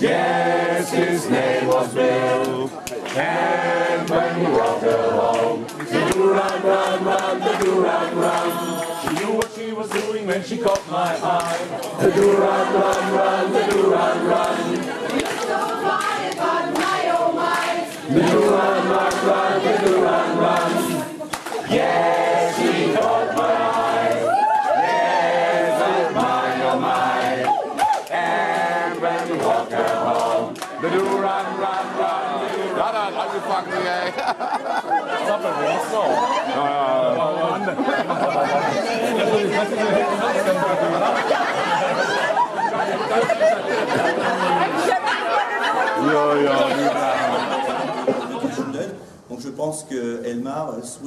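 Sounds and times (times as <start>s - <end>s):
men singing unaccompanied: 0.0s - 27.5s, 28.1s - 33.7s.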